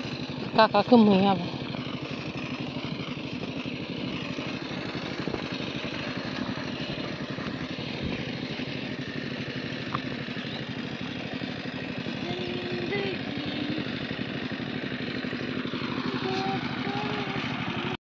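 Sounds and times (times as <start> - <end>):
engine running with low throb: 0.0 - 18.0.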